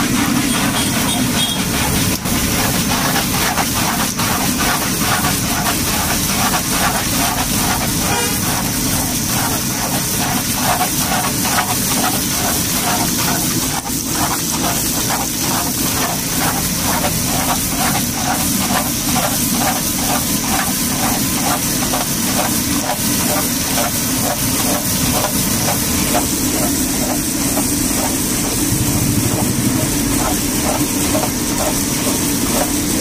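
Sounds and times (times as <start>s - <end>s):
food deep-frying in hot oil: 0.0s - 33.0s
pulsing low machine hum: 23.2s - 33.0s.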